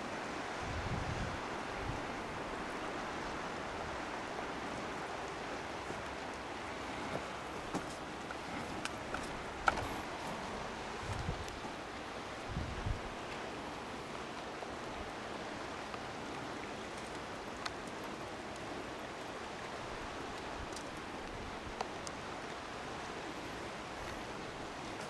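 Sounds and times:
outdoor background hiss: 0.0 - 25.0
faint clicks: 15.8 - 18.7.

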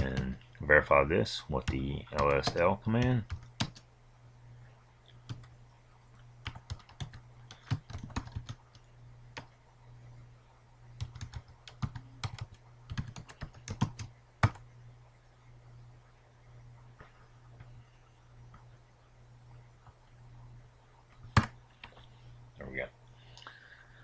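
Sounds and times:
faint low hum: 0.0 - 24.0
keyboard typing: 1.6 - 3.8, 5.1 - 5.6, 6.4 - 9.5, 11.0 - 14.7, 21.1 - 22.1.

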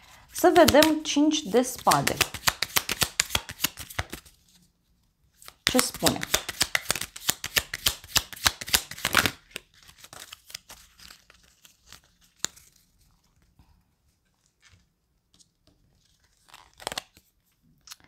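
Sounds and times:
card rustle: 0.0 - 4.6, 5.4 - 13.4
cards being shuffled: 0.1 - 4.6, 5.4 - 12.9, 15.4 - 17.3
card snap: 0.5 - 1.1, 1.7 - 4.2, 5.6 - 9.4.

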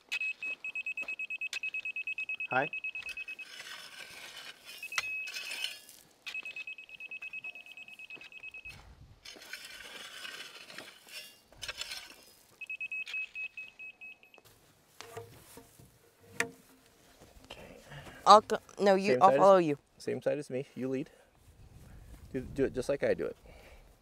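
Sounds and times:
rake scraping through gravel: 3.1 - 6.6, 9.2 - 12.6.

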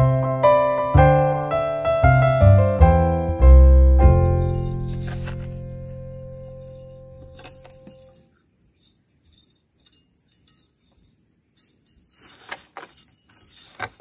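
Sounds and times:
plastic trowel scraping compost: 4.2 - 8.2, 12.0 - 14.0.

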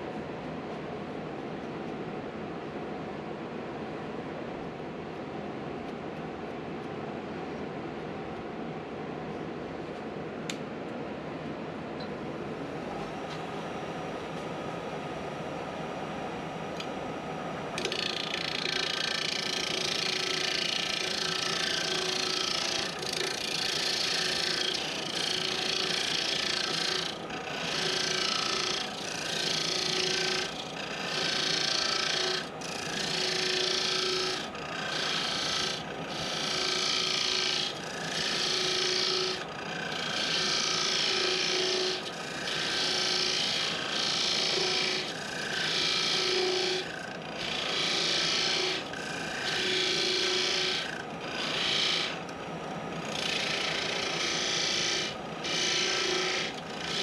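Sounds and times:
wood lathe humming: 17.7 - 57.0
turning tool cutting wood: 17.8 - 57.0.

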